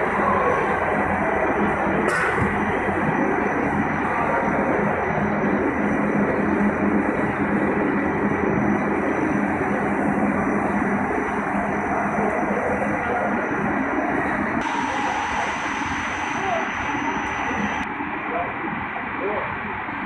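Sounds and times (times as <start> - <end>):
faint high whine: 0.0 - 20.0
production line machinery running: 0.0 - 20.0.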